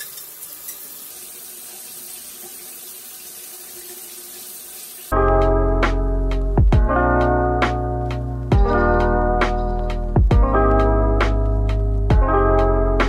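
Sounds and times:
shower water spraying: 0.0s - 5.2s
background music: 5.1s - 13.0s.

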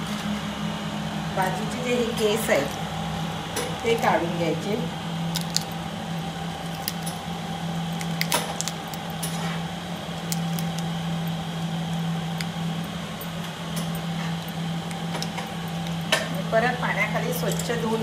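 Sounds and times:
crab shell clicks and wet squishes: 5.3s - 5.8s, 6.5s - 7.3s, 7.9s - 9.3s, 10.0s - 11.4s, 12.3s - 12.6s.

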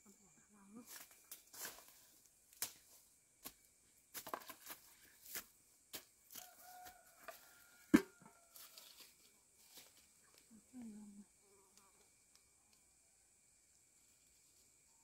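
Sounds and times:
rustling and handling noises: 8.4s - 10.4s
crinkles and small clicks: 9.9s - 10.9s, 11.7s - 12.9s.

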